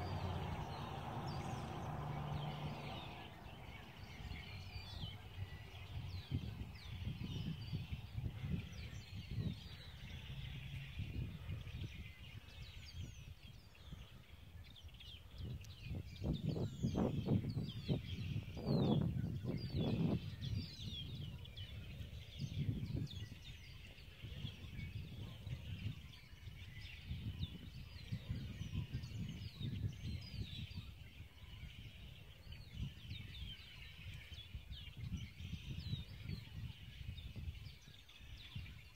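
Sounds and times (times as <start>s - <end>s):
low rumbling background noise: 0.0s - 6.6s
songbirds chirping: 0.0s - 38.9s.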